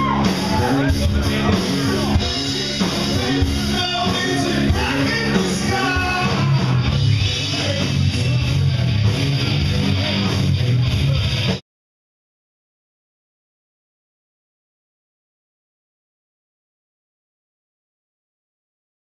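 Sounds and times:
lead singer: 0:00.0 - 0:08.5
live rock band playing: 0:00.0 - 0:11.6.

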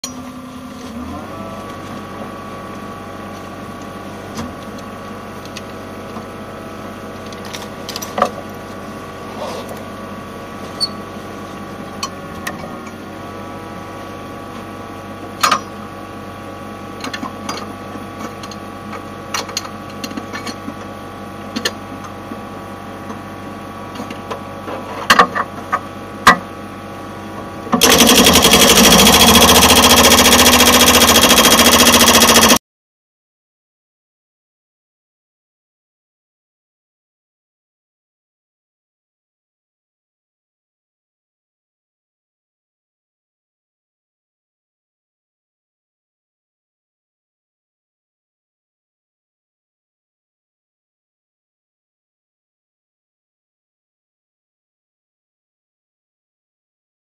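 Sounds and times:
excavator diesel engine running: 0:00.0 - 0:32.6
hydraulic breaker hammering concrete: 0:27.8 - 0:32.6.

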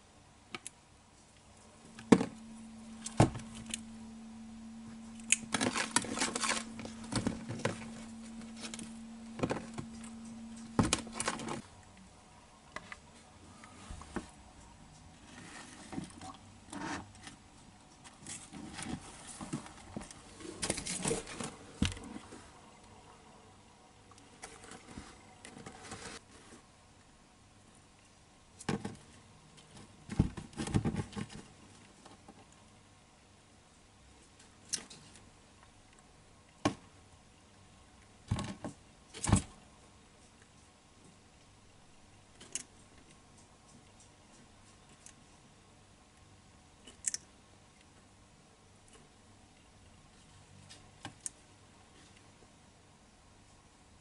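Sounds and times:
rustling: 0:01.2 - 0:11.8, 0:24.3 - 0:26.7
gecko feet scratching plastic: 0:05.3 - 0:11.7.

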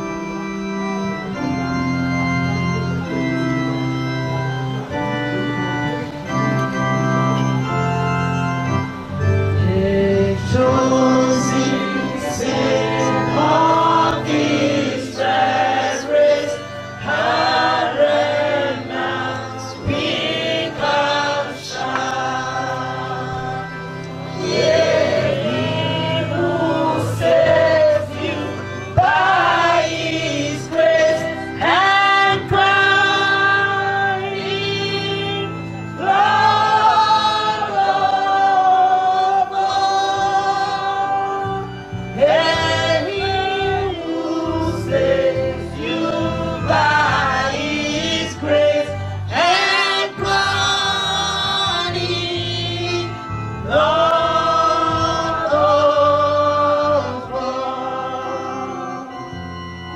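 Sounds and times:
congregation singing a hymn: 0:00.0 - 0:59.9
electric organ playing chords: 0:00.0 - 0:59.9.

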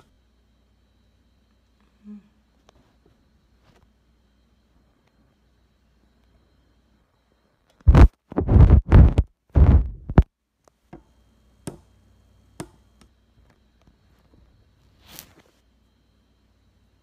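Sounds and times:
fabric rubbing on phone: 0:07.9 - 0:10.2, 0:14.9 - 0:15.6.

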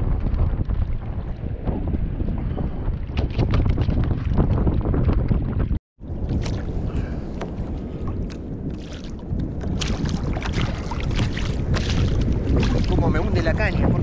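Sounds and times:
wind buffeting microphone: 0:00.0 - 0:14.0
water slapping against kayak hull: 0:03.0 - 0:13.4
short knocks and splashes: 0:06.3 - 0:06.7, 0:07.4 - 0:13.2.

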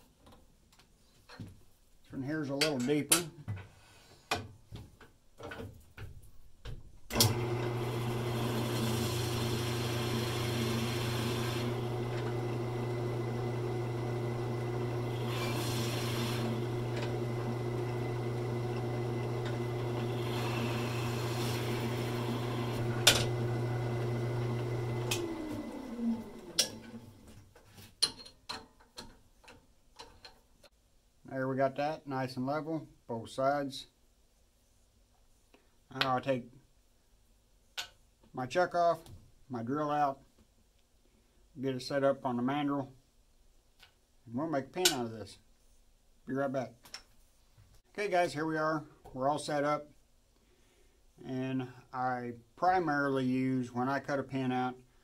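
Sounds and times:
lathe motor humming: 0:07.1 - 0:27.1
lathe winding down: 0:07.1 - 0:27.2
trimmer cutting with hiss: 0:15.0 - 0:17.3, 0:19.5 - 0:23.4.

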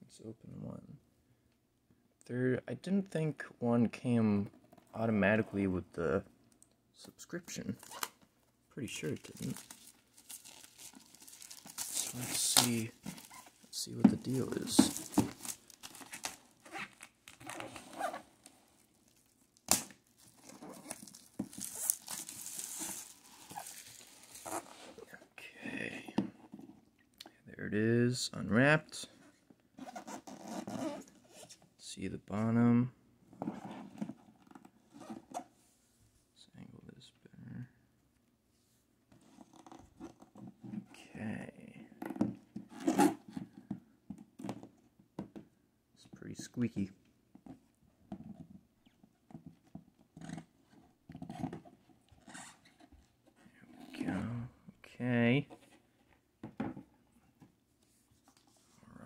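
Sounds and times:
plastic shrink-wrap tearing and crinkling: 0:09.1 - 0:13.7, 0:19.0 - 0:24.8
cardboard lid scraping and squeaking: 0:11.4 - 0:18.4.

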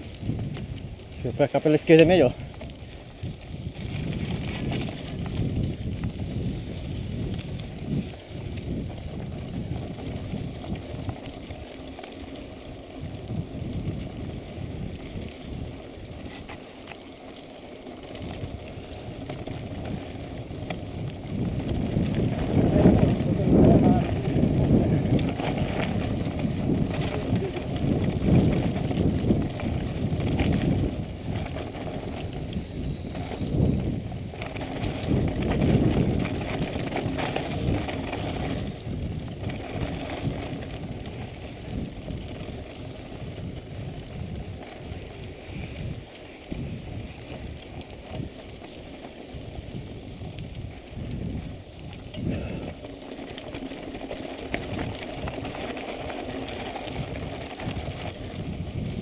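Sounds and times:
bike tyres rumbling on dirt: 0:00.0 - 0:59.0.

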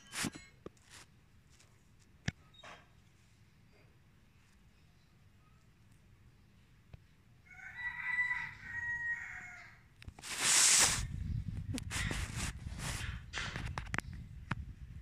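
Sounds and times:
rooster crowing: 0:07.4 - 0:09.9
scuffing and rustling: 0:10.2 - 0:11.1
loud hiss-like noise burst: 0:10.2 - 0:11.2.

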